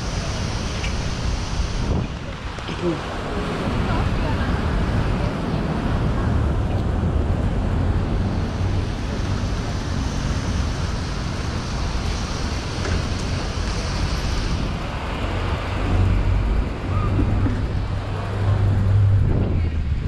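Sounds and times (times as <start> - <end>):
surf washing on beach: 0.0 - 20.0
wind rumbling on microphone: 0.0 - 20.0
hiss: 8.4 - 14.8.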